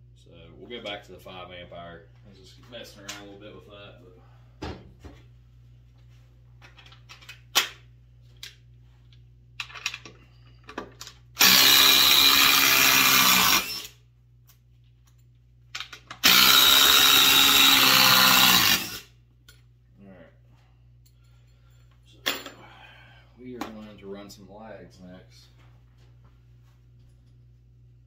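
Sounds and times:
impact driver hammering screw: 11.4s - 13.9s, 16.2s - 19.0s.

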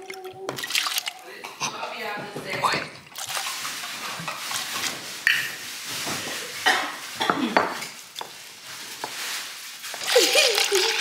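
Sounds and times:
liquor pouring into cups: 0.0s - 1.3s, 3.0s - 5.6s, 9.8s - 11.0s
bottle clinking against cups: 5.3s - 5.6s.

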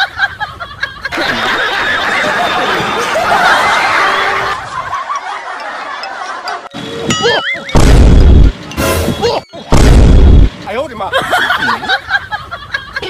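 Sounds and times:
group of people laughing: 0.0s - 7.8s, 10.9s - 13.0s.

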